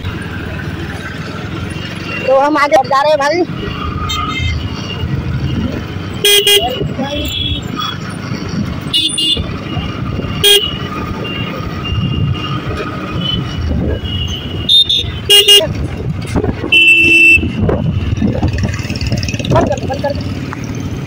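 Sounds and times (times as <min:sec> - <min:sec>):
motorcycle engine rumble: 0:00.0 - 0:21.0
vehicle horns beeping: 0:03.6 - 0:08.1, 0:08.8 - 0:16.0, 0:16.6 - 0:18.0.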